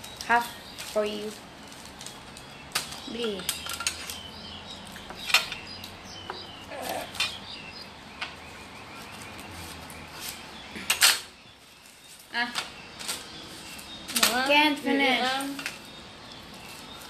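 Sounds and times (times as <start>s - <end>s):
tableware and packaging clinking: 0.0s - 4.3s.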